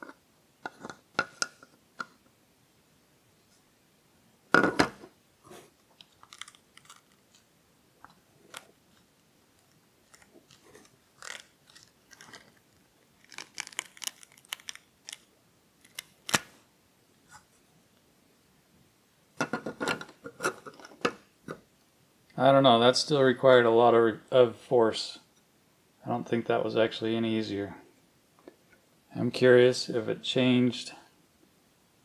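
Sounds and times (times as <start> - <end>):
rubber crackling and creaking: 9.6 - 16.5.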